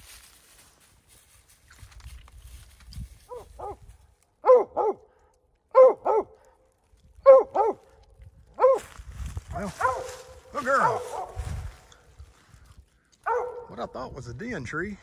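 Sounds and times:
dog running through dry leaves: 0:00.0 - 0:03.9, 0:08.7 - 0:11.9
dog barking in pairs: 0:03.3 - 0:03.8, 0:04.4 - 0:05.1, 0:05.7 - 0:06.4, 0:07.2 - 0:07.9, 0:08.6 - 0:08.9, 0:09.5 - 0:11.5, 0:13.2 - 0:13.8.

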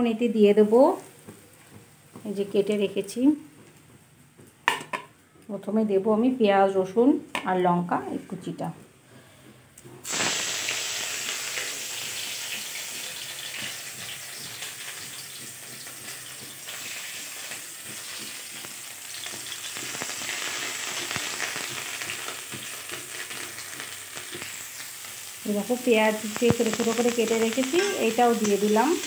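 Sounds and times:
garlic sizzling in hot oil: 0:10.0 - 0:29.0.

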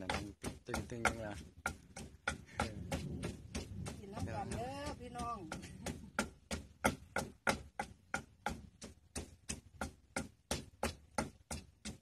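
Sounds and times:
pestle pounding in mortar: 0:00.0 - 0:12.0.

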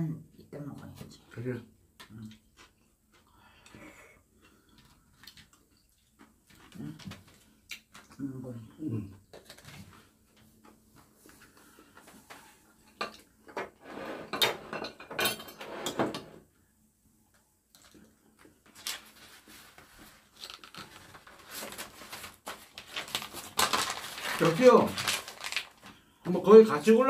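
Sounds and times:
plates and fork clinking on table: 0:12.9 - 0:16.4.

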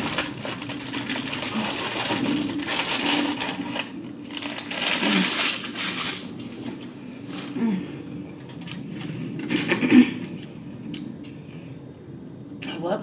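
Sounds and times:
paper sleeve crinkling: 0:00.0 - 0:07.6.

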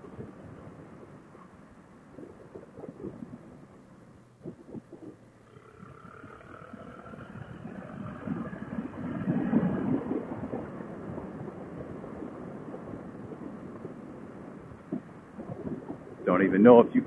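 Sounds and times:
muffled motorcycle engine: 0:00.0 - 0:17.0
wind rushing: 0:05.9 - 0:17.0.

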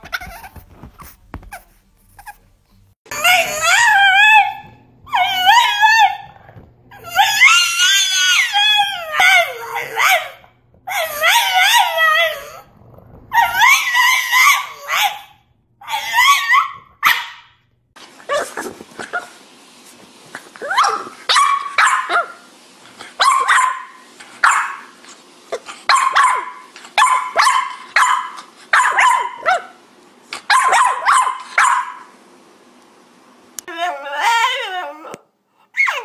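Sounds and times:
puppy barking and yipping: 0:00.0 - 0:02.4, 0:06.9 - 0:12.6, 0:13.3 - 0:17.5, 0:20.6 - 0:22.4, 0:23.2 - 0:24.9, 0:25.9 - 0:29.8, 0:30.5 - 0:32.0, 0:35.8 - 0:36.0.

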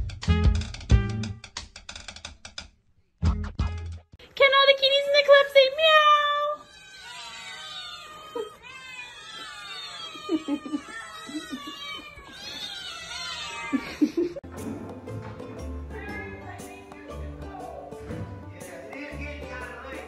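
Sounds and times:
cat yowling: 0:06.2 - 0:14.0
kittens meowing: 0:06.6 - 0:14.0.

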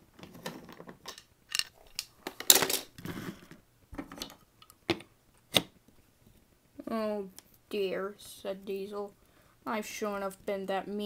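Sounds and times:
wooden toy trains clattering: 0:00.2 - 0:02.9.

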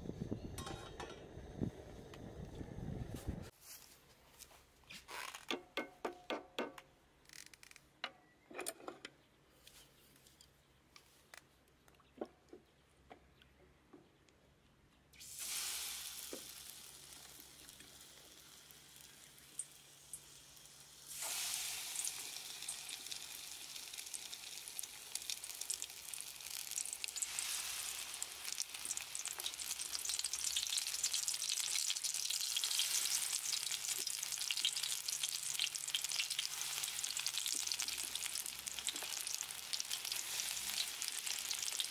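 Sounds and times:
tempura sizzling in hot oil: 0:15.2 - 0:41.9.

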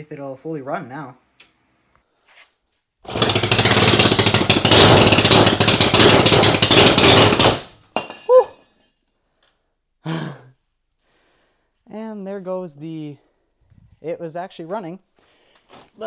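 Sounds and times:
engine running loud and fast: 0:03.1 - 0:07.7.

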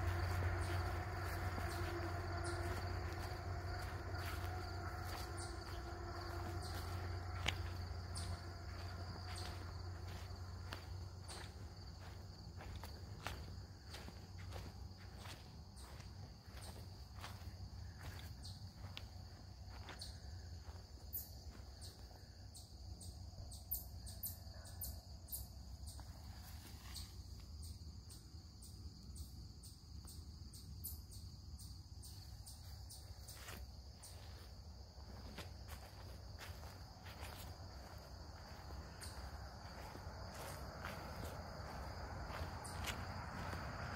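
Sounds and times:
crickets chirping: 0:00.0 - 0:43.9.

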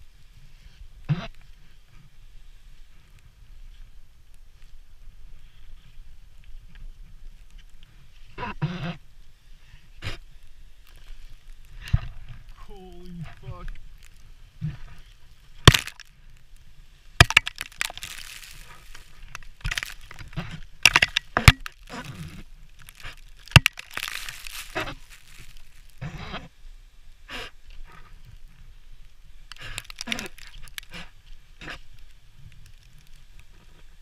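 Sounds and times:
rushing showers of ice and snow: 0:09.0 - 0:27.6
ice cracking and knocking: 0:14.8 - 0:16.2, 0:17.2 - 0:25.9, 0:29.5 - 0:31.1.

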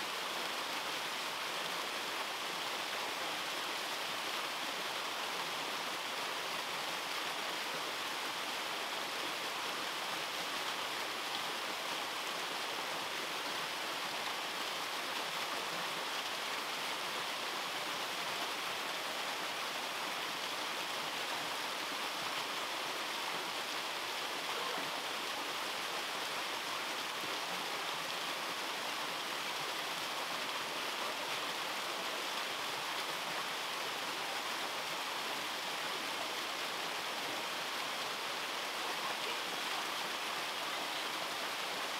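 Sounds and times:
waterfall splashing over rocks: 0:00.0 - 0:41.9.

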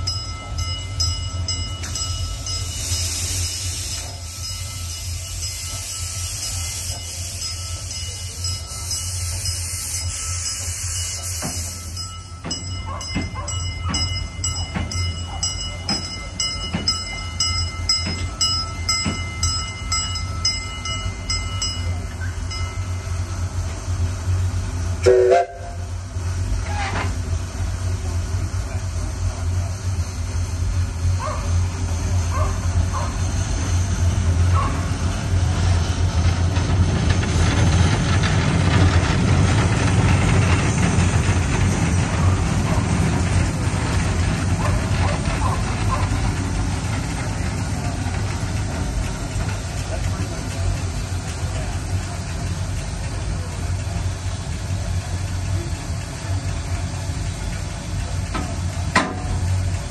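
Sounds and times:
steam hissing: 0:00.4 - 0:59.9
wheels clicking regularly: 0:11.4 - 0:23.8, 0:30.6 - 0:59.9.

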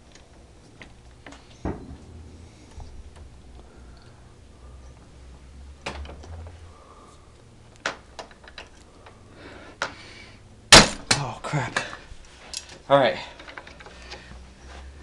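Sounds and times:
low handling rumble: 0:00.0 - 0:09.5.

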